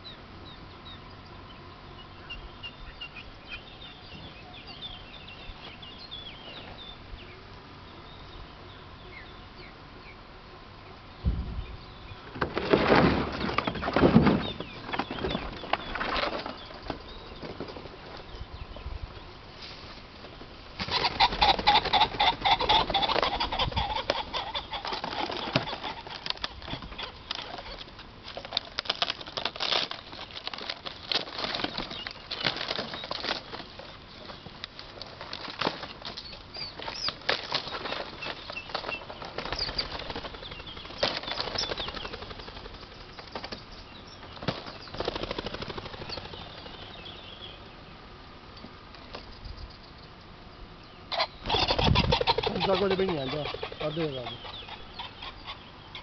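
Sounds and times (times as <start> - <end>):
pheasants beating wings: 11.2 - 47.7, 51.1 - 56.0.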